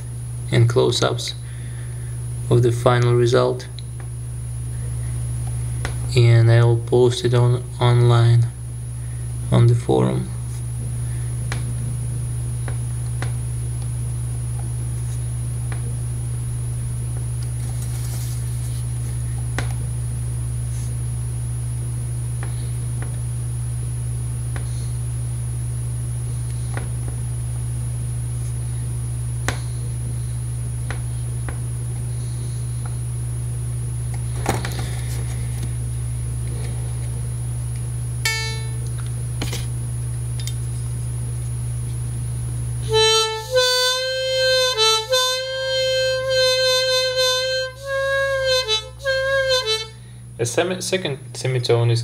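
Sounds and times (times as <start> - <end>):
thin high whine: 0.0 - 39.7, 40.6 - 51.3
low hum: 0.0 - 51.4
harmonica note: 38.2 - 38.9, 42.8 - 50.3.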